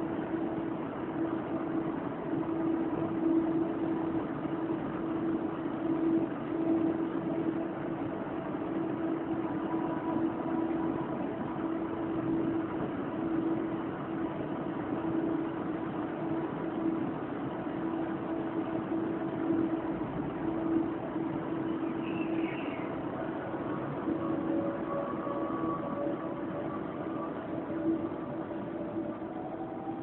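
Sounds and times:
electric train humming: 0.0 - 30.0.

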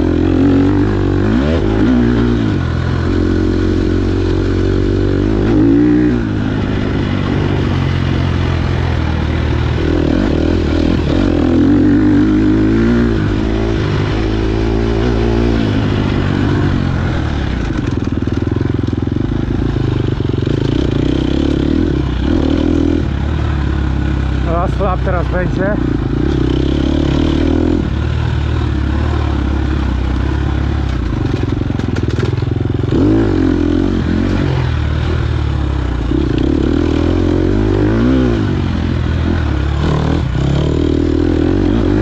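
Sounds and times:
dirt bike engine revving: 0.0 - 42.0.

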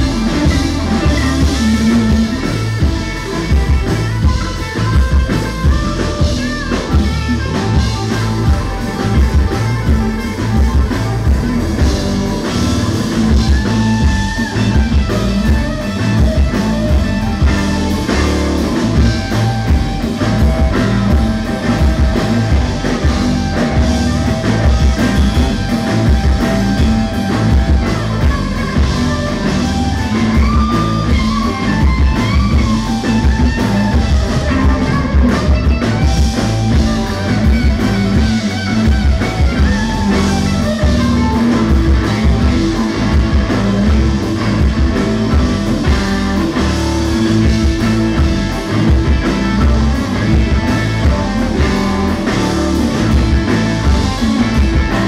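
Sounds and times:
drum kit: 0.0 - 55.0
electric bass: 0.0 - 55.0
electric guitar: 0.0 - 55.0.

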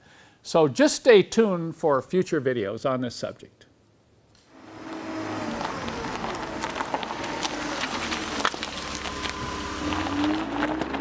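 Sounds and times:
road and wind noise: 4.6 - 11.0
vehicle engine running: 4.6 - 11.0.

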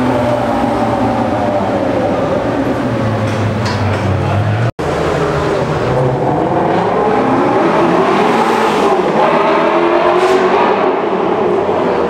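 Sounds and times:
sports car engine revving: 4.4 - 12.0.

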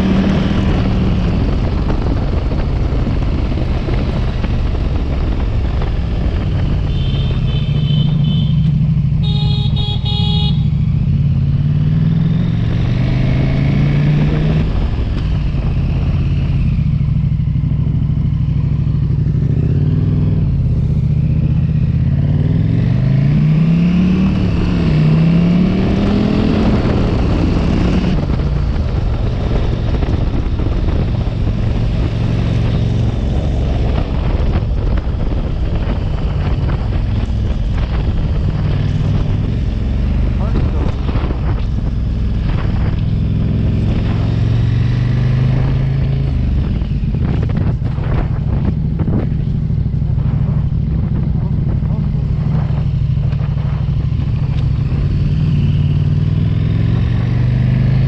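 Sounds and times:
wind noise on microphone: 0.0 - 8.6, 9.2 - 58.0
motorcycle engine revving: 0.0 - 58.0
horn honking: 6.8 - 10.8.

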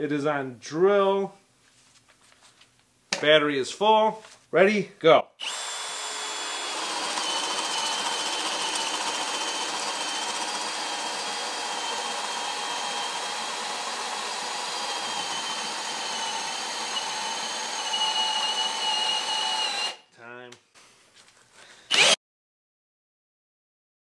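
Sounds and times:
drill motor whining under load: 5.4 - 20.0, 21.9 - 22.2.

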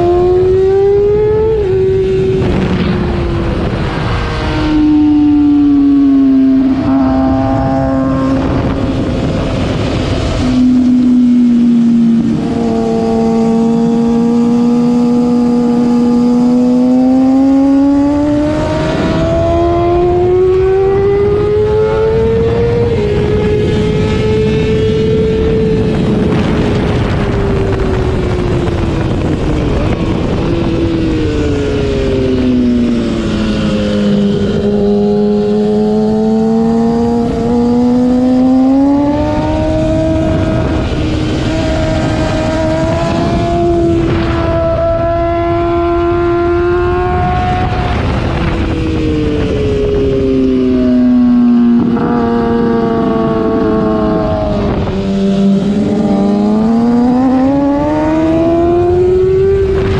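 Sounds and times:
motorcycle engine at full throttle: 0.0 - 59.9
wind rush: 0.0 - 59.9.

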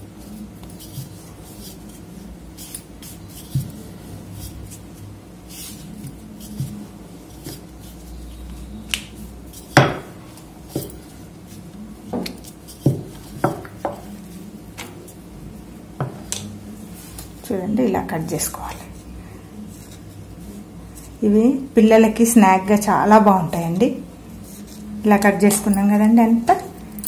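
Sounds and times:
rolling pin knocking on countertop: 9.8 - 11.0, 12.1 - 14.0.

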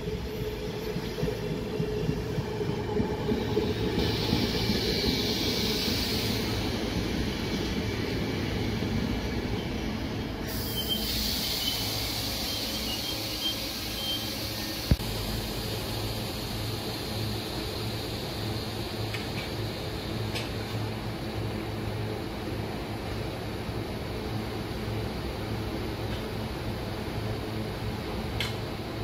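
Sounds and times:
train wheels rumbling on rails: 0.0 - 29.0
thin whistling tone: 10.6 - 14.8
wheel squeal: 10.6 - 14.8.

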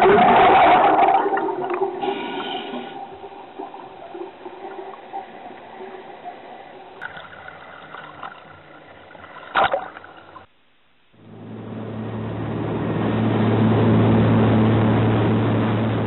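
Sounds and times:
underwater bubbling: 0.0 - 10.5
water sloshing and lapping: 0.0 - 10.5
boat engine running: 11.2 - 16.0.

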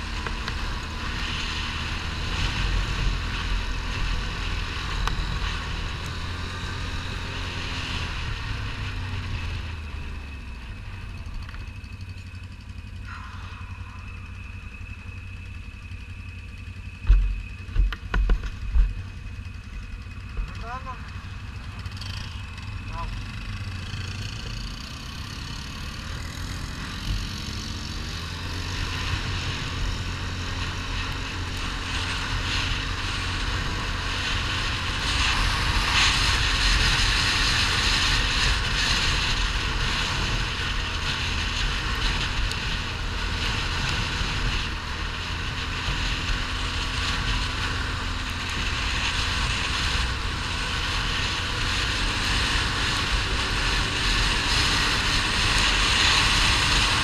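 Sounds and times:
wind rushing over microphone: 0.0 - 12.1, 12.8 - 57.0
quad bike engine running: 0.0 - 57.0.

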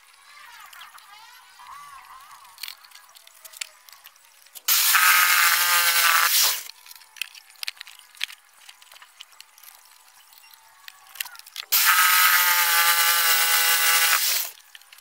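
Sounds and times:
jigsaw cutting wood: 4.7 - 6.7, 11.7 - 14.6.

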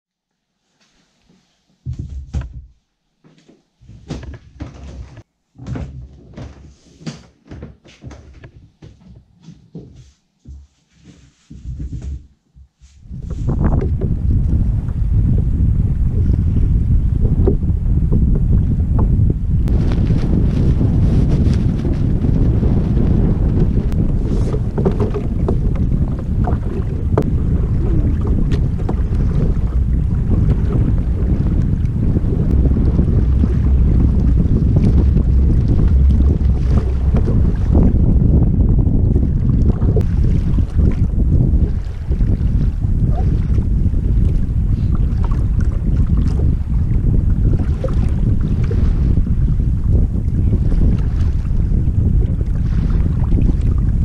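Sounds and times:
waves slapping against hull: 11.5 - 54.0
wind buffeting microphone: 13.0 - 54.0.

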